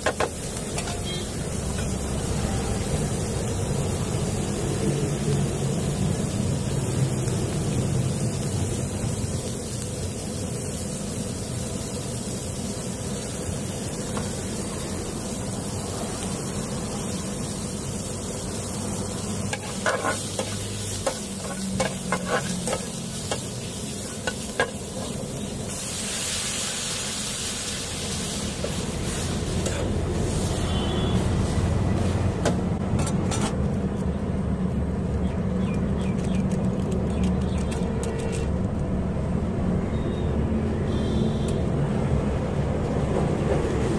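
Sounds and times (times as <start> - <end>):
bright hiss: 0.0 - 32.8
vegetables sizzling in a pan: 0.0 - 32.8
spatula scraping a pan: 19.5 - 23.4.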